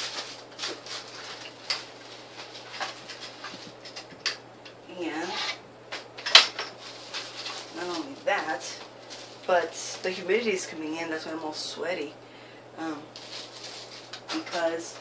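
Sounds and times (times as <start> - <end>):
plastic packaging crinkling: 0.0 - 4.3, 6.2 - 10.3, 13.1 - 15.0.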